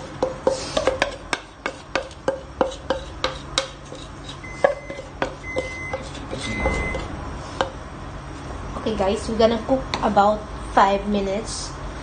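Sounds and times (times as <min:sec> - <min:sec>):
faint high beep: 0:04.5 - 0:07.1.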